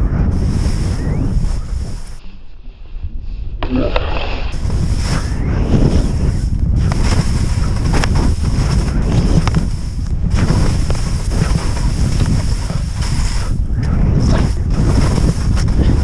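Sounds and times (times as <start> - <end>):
wind rushing over microphone: 0.0 - 16.0
skis hissing and scraping on snow: 0.2 - 2.2, 4.1 - 16.0.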